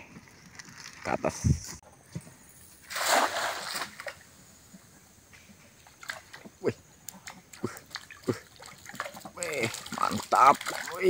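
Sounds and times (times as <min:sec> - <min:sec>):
net splashing into water: 0:02.8 - 0:04.2, 0:07.9 - 0:11.0
water dripping from net: 0:07.2 - 0:11.0.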